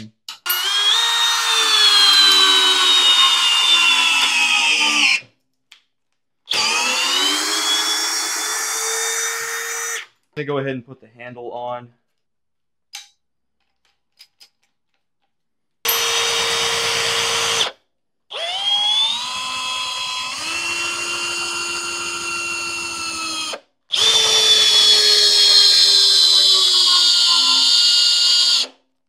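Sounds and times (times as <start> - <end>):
cordless drill motor whining: 0.5 - 5.2, 6.5 - 10.1, 15.9 - 17.7, 18.3 - 28.8.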